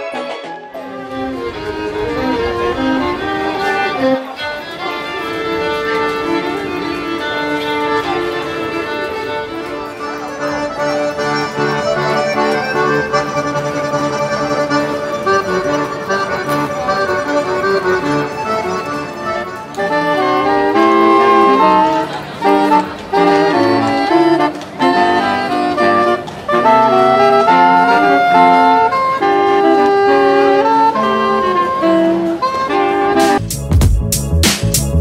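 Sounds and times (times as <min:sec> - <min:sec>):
violin duet: 0:00.0 - 0:33.4
accordions playing a tune: 0:00.0 - 0:35.0.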